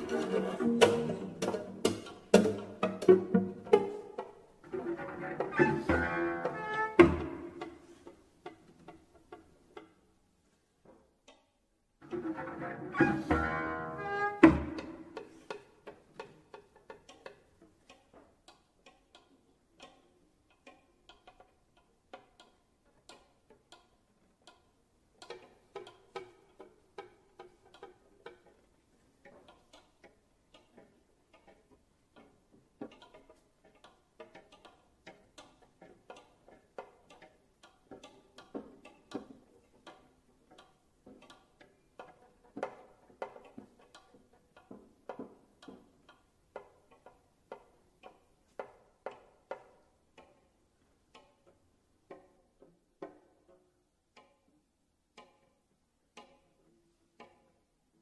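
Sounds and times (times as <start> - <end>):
plucked cello notes: 0.0 - 9.9, 12.0 - 22.6
cello pizzicato: 0.0 - 58.0.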